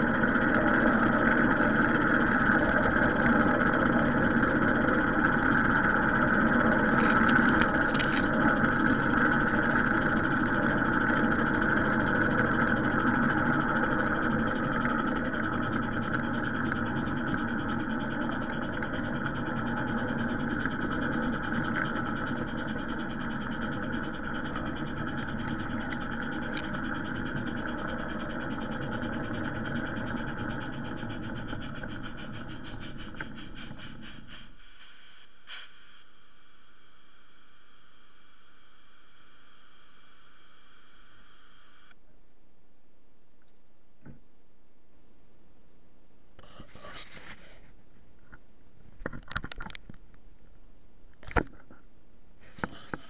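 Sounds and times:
track clicks: 0.0 - 34.5
model train wheels rumbling: 0.0 - 41.9
train motor whine: 0.0 - 42.0
faint hiss: 33.8 - 41.9.

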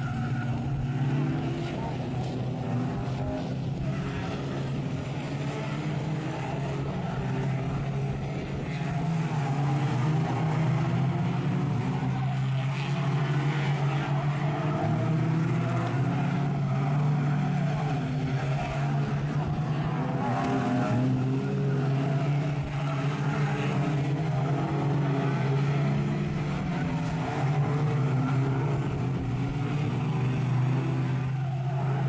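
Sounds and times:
racing car engines revving: 0.0 - 32.0.

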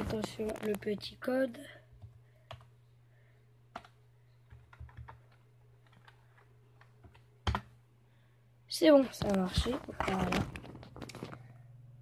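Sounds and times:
low steady hum: 0.0 - 12.0
keyboard key presses: 3.7 - 7.7.

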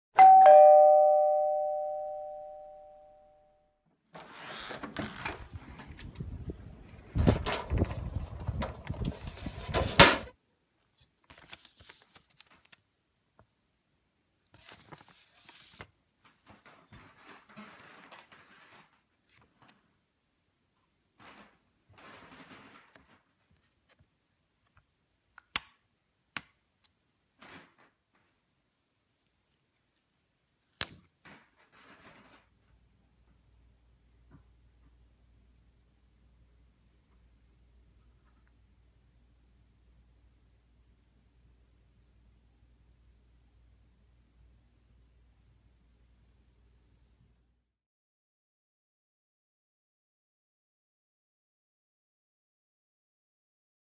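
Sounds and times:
two-note doorbell chime: 0.2 - 3.4
door opening with rustling: 4.1 - 10.3
paper packaging rustling: 10.9 - 12.8, 14.5 - 19.8.

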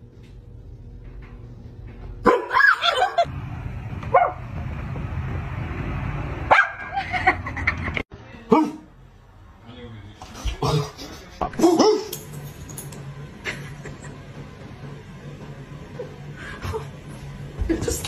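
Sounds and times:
dog barking and yipping: 2.2 - 3.1, 6.5 - 7.0.

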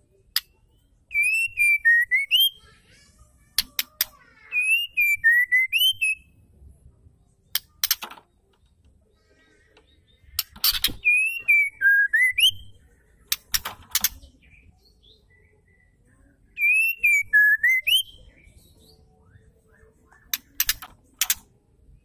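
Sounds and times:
bird whistling song: 0.4 - 2.7, 4.5 - 6.4, 9.9 - 21.3
sharp dry clicks: 7.5 - 8.7, 13.3 - 14.2, 20.3 - 21.5.

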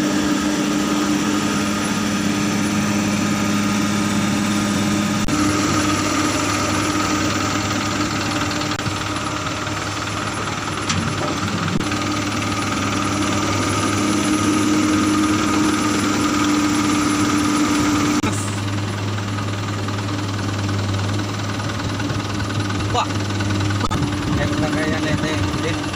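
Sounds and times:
excavator diesel engine running: 0.0 - 25.9.

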